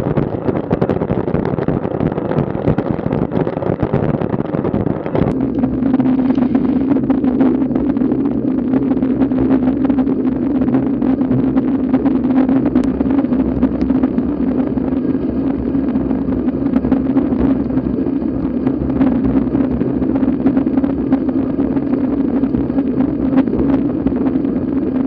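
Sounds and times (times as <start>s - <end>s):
constant low drone: 0.0s - 25.0s
wind rushing on microphone: 0.0s - 25.0s
road noise: 5.0s - 8.6s.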